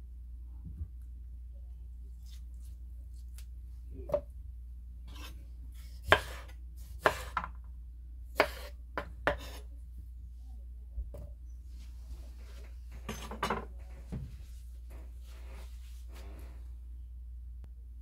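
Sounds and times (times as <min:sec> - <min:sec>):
knife chopping on wooden board: 0:06.0 - 0:07.6, 0:08.4 - 0:09.6.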